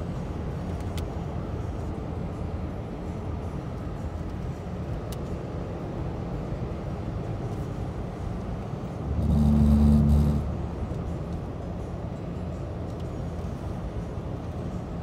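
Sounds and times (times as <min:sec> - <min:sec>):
low tonal hum: 0:08.7 - 0:12.6
tyre and engine noise: 0:08.8 - 0:13.2.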